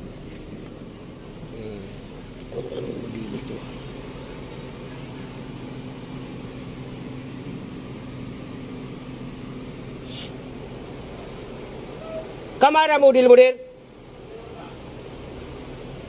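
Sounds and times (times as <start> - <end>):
car engine idling: 0.0 - 16.0
brief high hiss: 10.0 - 10.4.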